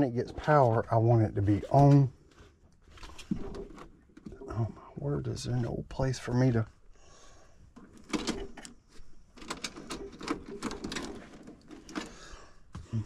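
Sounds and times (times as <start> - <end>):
clicking and rattling of small parts: 7.8 - 12.4.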